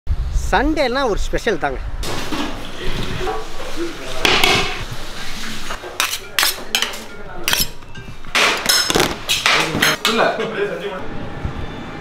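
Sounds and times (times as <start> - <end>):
utensils clinking against metal pots: 4.2 - 4.8, 5.4 - 10.4.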